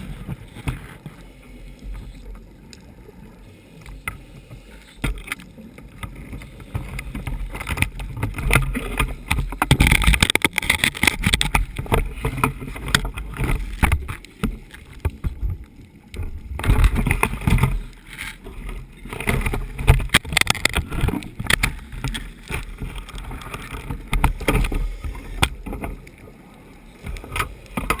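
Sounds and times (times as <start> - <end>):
clicks and knocks: 19.2 - 24.8.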